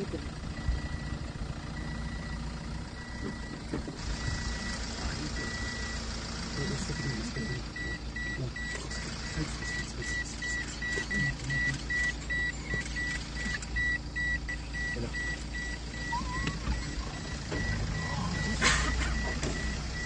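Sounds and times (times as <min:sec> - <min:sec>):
low rumble: 0:00.0 - 0:05.9
reversing alarm beeping: 0:00.6 - 0:06.0, 0:06.6 - 0:20.0.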